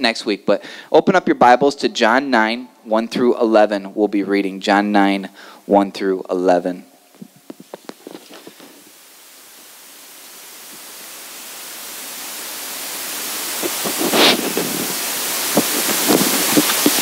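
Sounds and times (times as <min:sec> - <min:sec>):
steady hiss: 0:00.0 - 0:17.0
paper pages rustling: 0:07.5 - 0:08.9.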